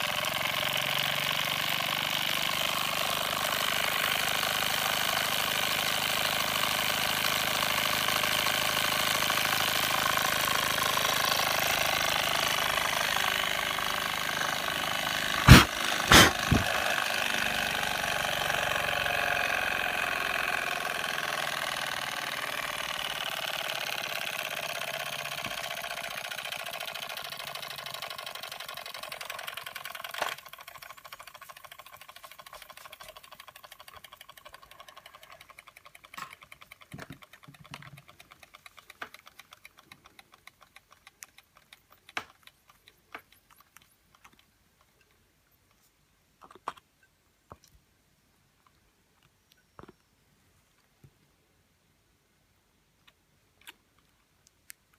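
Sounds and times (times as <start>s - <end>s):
toy steam engine hissing rattle: 0.0s - 40.6s
faint rapid ticking: 9.1s - 45.1s
scattered clicks: 20.3s - 45.8s.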